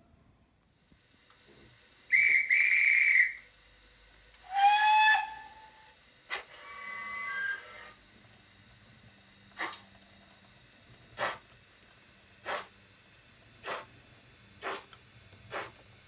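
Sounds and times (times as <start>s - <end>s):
high steam whistle blasts: 2.1s - 3.5s, 4.4s - 6.0s, 6.6s - 8.0s
lower steam whistle: 2.1s - 3.5s, 4.4s - 6.0s, 6.6s - 8.0s.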